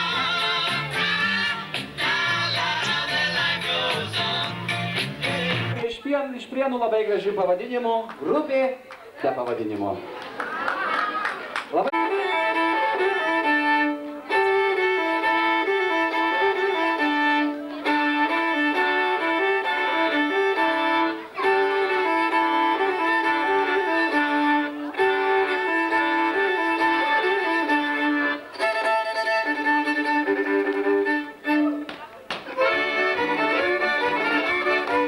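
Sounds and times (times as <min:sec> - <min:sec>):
violin melody: 0:00.0 - 0:02.3, 0:11.8 - 0:35.0.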